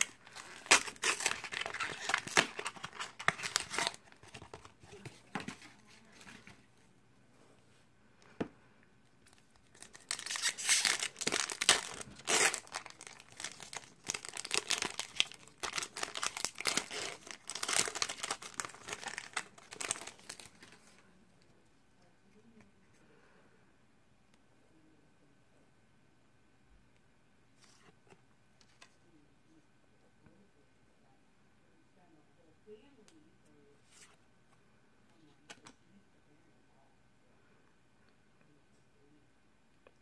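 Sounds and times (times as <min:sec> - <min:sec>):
foil wrapper crinkling and tearing: 0:00.0 - 0:04.7, 0:09.2 - 0:20.7.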